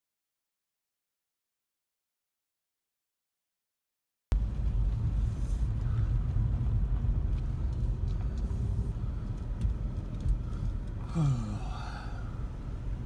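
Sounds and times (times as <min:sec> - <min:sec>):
car rumble from inside cabin: 0:04.3 - 0:13.0.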